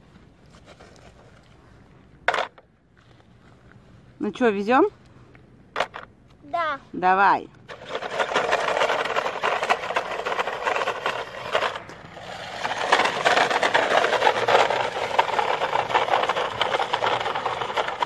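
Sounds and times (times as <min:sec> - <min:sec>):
toy truck motor whirring: 0:07.7 - 0:18.0
tyres crackling on gravel: 0:07.7 - 0:18.0.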